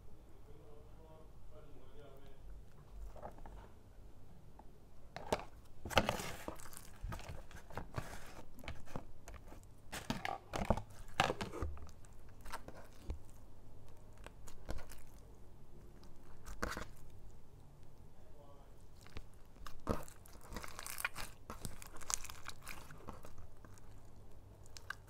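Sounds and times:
foam slime crunching and crackling: 5.9 - 15.3, 16.0 - 17.2, 18.9 - 25.0.

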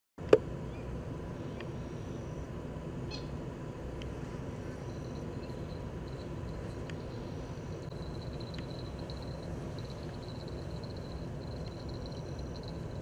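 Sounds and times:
steady low rumble: 0.6 - 13.0
faint high chirps: 4.7 - 13.0.

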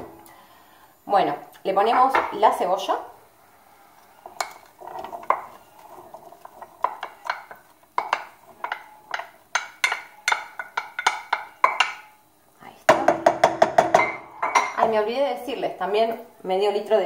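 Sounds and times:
wooden spoon tapping metal pot: 4.2 - 12.2, 12.9 - 14.9.

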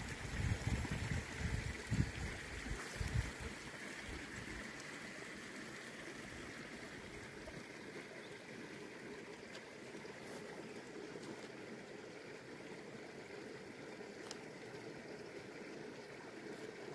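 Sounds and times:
wind gusts on microphone: 0.0 - 3.5
mountain stream flowing: 0.0 - 16.9.

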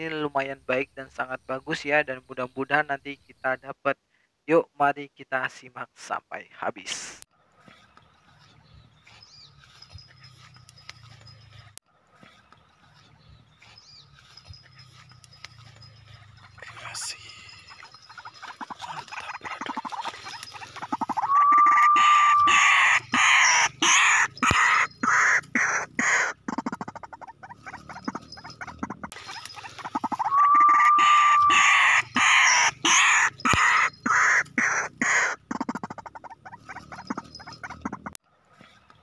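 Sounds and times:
bird calls rapid pulsing chatter: 12.5 - 38.1.

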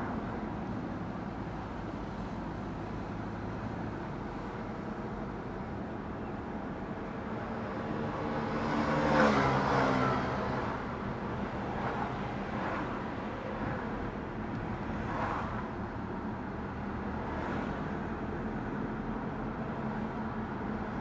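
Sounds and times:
car road and tyre noise: 0.0 - 21.0
vehicle passing close by: 7.9 - 10.9.

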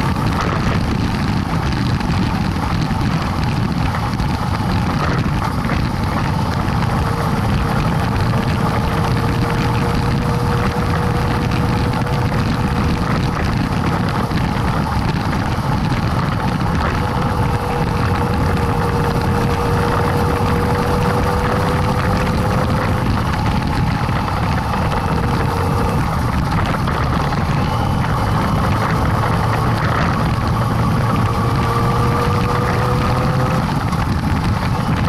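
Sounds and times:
motorcycle engine running: 0.0 - 35.0
tyre noise on dirt road: 0.0 - 35.0
wind noise: 0.0 - 35.0.

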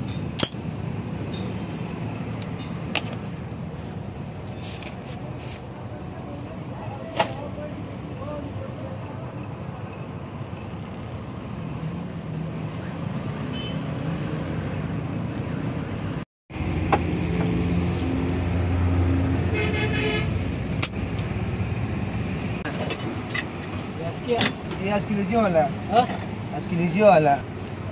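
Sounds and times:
vehicle engines running: 0.0 - 13.4, 14.0 - 27.9
car horn toot: 13.5 - 13.9, 19.5 - 20.4.

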